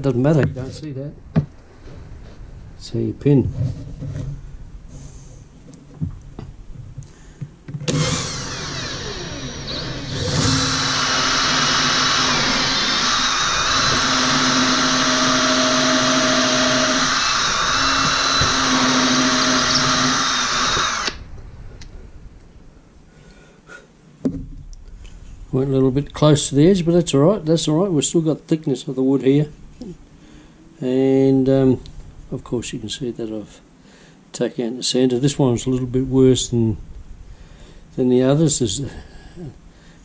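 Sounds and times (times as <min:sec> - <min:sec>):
cordless drill boring into wood: 0:07.8 - 0:21.2.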